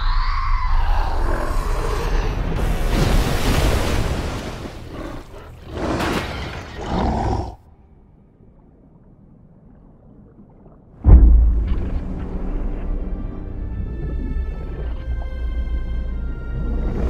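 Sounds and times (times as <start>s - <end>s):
heavy water crash and splash: 1.6s - 7.5s, 8.4s - 17.0s
gorilla roaring: 6.8s - 7.6s.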